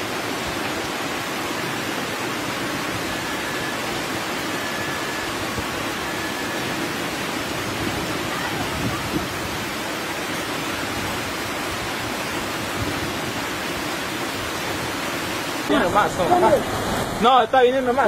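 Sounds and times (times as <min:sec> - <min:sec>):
floodwater rushing down a street: 0:00.0 - 0:18.0.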